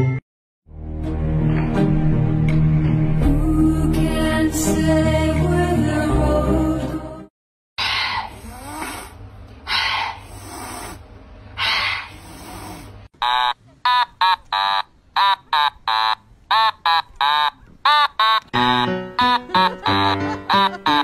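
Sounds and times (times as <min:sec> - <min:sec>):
cat hissing: 0:07.8 - 0:13.1.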